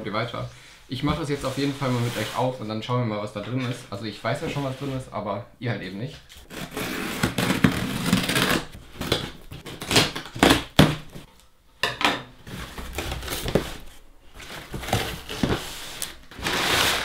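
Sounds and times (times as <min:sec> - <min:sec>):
scissors slitting packing tape: 0:06.4 - 0:11.0.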